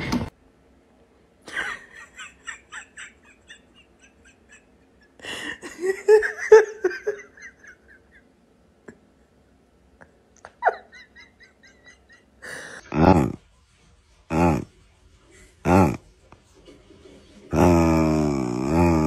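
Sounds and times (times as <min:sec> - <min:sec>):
person giggling: 0:01.5 - 0:09.1, 0:10.0 - 0:13.4.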